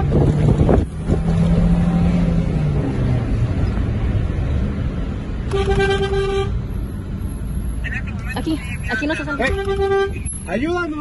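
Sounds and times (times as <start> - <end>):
car horn: 0.0 - 0.2, 5.5 - 6.6, 8.4 - 10.6
car engine and road noise: 0.0 - 11.0.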